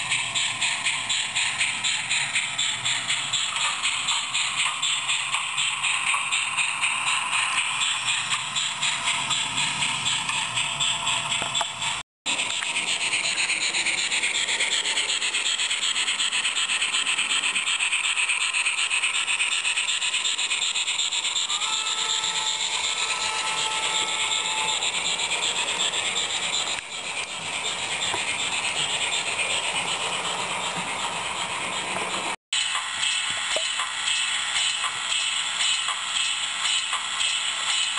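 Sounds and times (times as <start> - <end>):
steam chuffing and hiss: 0.0 - 37.9
train rolling on track: 0.0 - 37.9
two-note locomotive whistle: 21.4 - 25.6.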